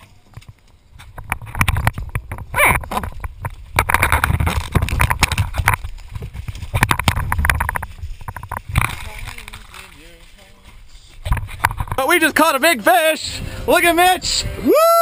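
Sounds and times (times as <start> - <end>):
camera handling knocks and rubbing: 1.1 - 9.0.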